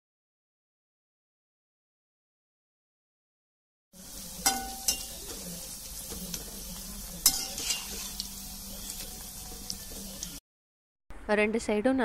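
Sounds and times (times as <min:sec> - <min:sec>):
batter balls sizzling in hot oil: 0:04.0 - 0:10.4.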